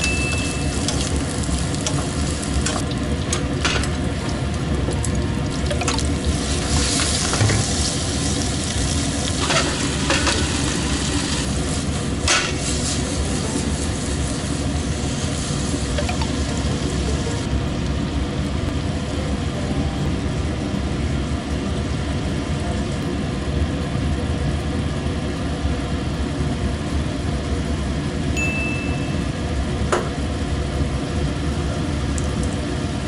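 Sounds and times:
food sizzling in a pan: 0.0 - 2.9, 5.5 - 17.5.

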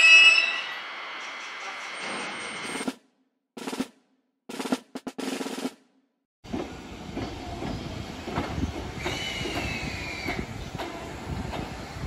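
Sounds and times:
high train squeal: 0.0 - 2.8, 7.2 - 11.9
snare drum roll: 3.6 - 5.8
train rumbling with clacks: 6.4 - 12.0.

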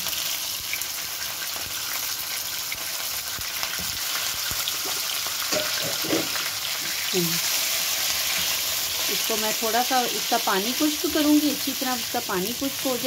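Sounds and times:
chicken sizzling in hot oil: 0.0 - 13.0
wooden spoon knocking and scraping pan: 4.8 - 6.5.

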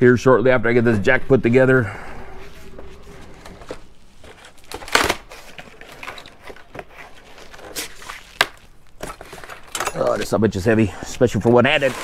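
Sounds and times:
cardboard rustling and scraping: 2.4 - 9.8, 11.4 - 12.0.

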